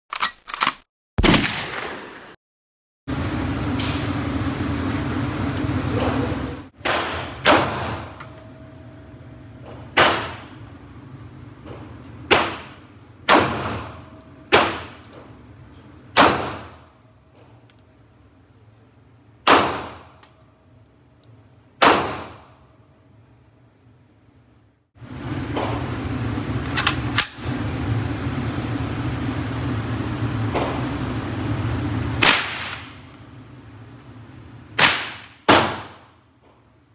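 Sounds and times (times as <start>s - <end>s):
pistol shots with echo: 19.5s - 20.1s, 21.8s - 22.5s, 34.8s - 36.0s.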